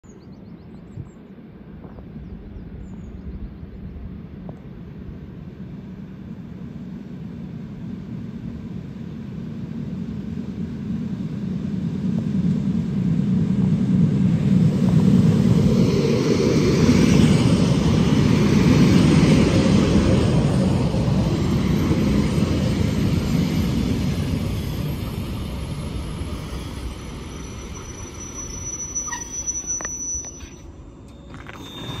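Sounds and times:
train wheels rumbling on rails: 0:04.0 - 0:32.0
train brake squeal: 0:23.2 - 0:32.0.

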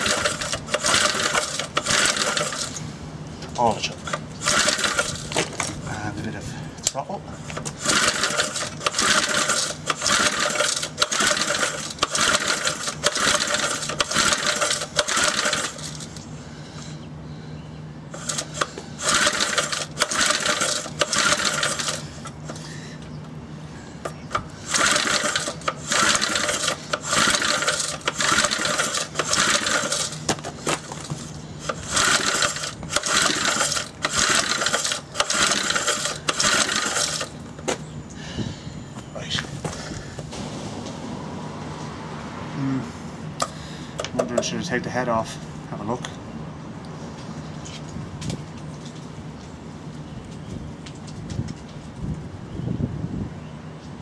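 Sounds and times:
engine cranked by pull-starter: 0:00.0 - 0:16.3, 0:18.1 - 0:22.8, 0:24.0 - 0:37.8.

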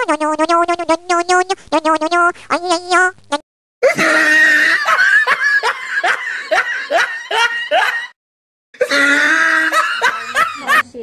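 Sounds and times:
high-pitched laughter: 0:03.8 - 0:08.2, 0:08.8 - 0:10.9.

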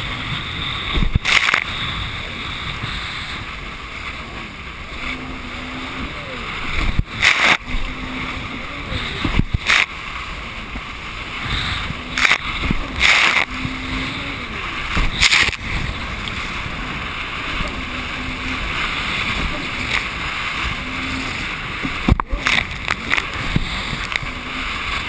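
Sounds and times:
hull splashing on waves: 0:00.0 - 0:25.0
jet ski engine and water rush: 0:00.0 - 0:25.0.

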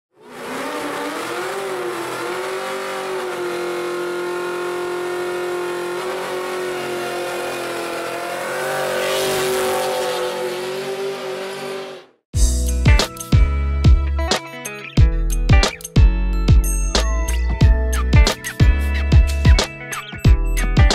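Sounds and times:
car engine at high revs: 0:00.1 - 0:12.2
spinning tyres hissing: 0:00.2 - 0:12.1.

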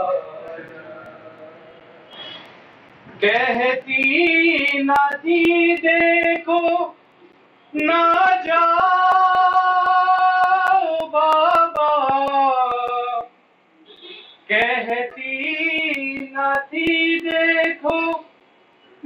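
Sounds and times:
rhythmic sharp slaps: 0:02.9 - 0:06.4, 0:07.9 - 0:13.3, 0:14.9 - 0:18.2.

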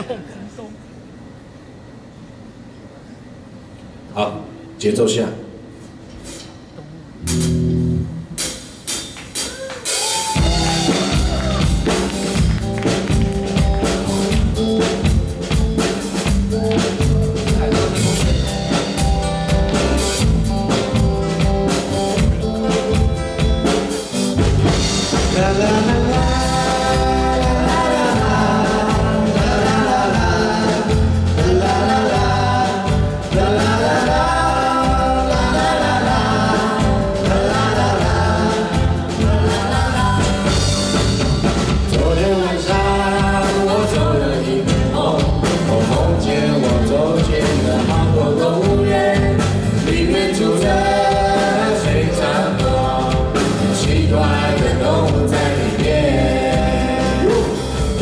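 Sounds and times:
drum kit: 0:06.2 - 0:58.0
live band playing: 0:06.2 - 0:58.0
bass: 0:06.8 - 0:58.0
person singing: 0:25.1 - 0:41.0, 0:41.8 - 0:58.0.

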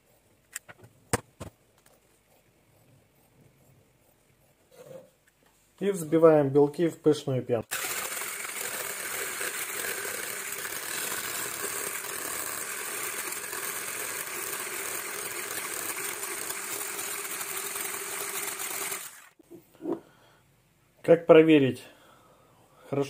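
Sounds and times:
electric hand blender whisking: 0:07.7 - 0:19.4.

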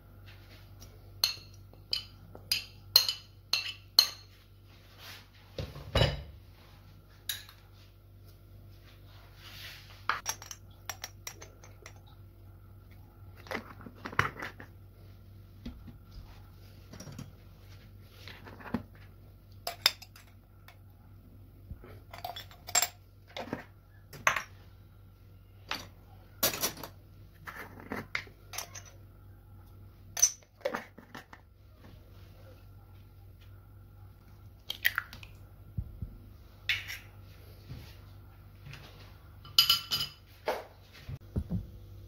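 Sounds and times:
faint steady hum: 0:00.0 - 0:42.0
utensils clinking on ceramic plate: 0:01.2 - 0:04.4, 0:10.1 - 0:12.0, 0:22.1 - 0:23.6, 0:28.5 - 0:29.0, 0:39.4 - 0:40.2.

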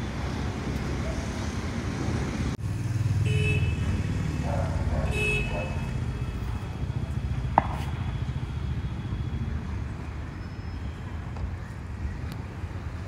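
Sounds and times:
low rumble of street traffic: 0:00.0 - 0:13.0.

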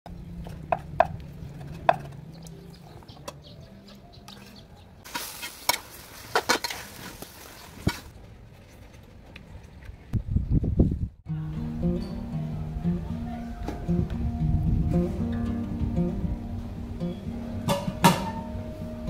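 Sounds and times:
sizzling hiss: 0:05.0 - 0:08.1.

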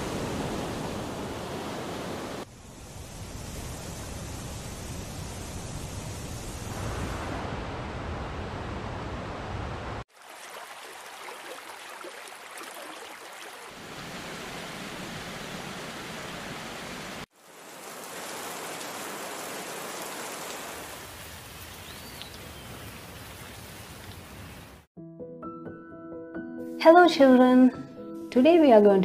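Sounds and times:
rain: 0:00.0 - 0:24.9
waterfall: 0:00.0 - 0:24.9
stream flowing: 0:10.1 - 0:24.9.

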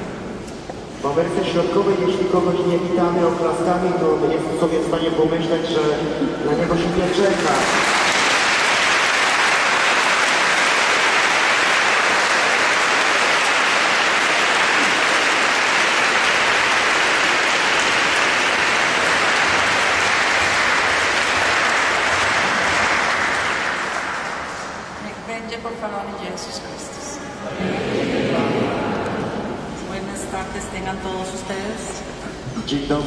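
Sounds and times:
large crowd applauding: 0:07.0 - 0:25.0.

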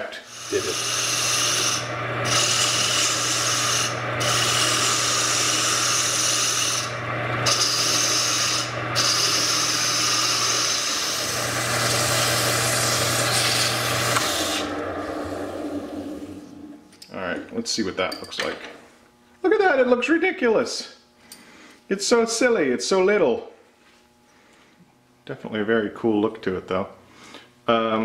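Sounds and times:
lathe tool scraping: 0:00.1 - 0:16.9
lathe motor hum: 0:00.2 - 0:17.0.

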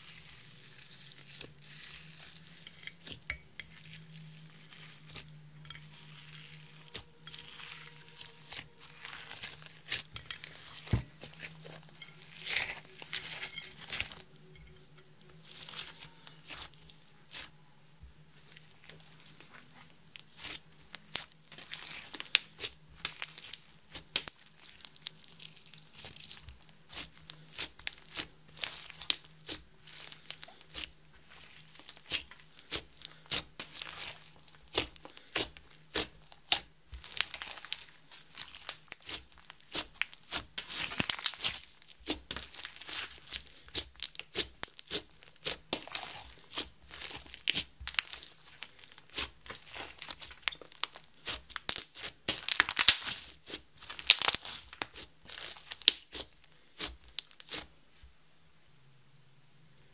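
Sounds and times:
slime squeezed with wet crackles: 0:20.1 - 0:57.7.

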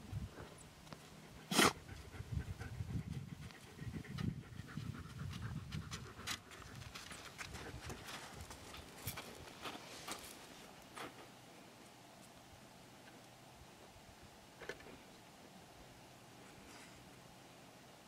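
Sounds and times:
animal breathing heavily: 0:01.1 - 0:09.0
animal sharp blow: 0:01.5 - 0:01.8.

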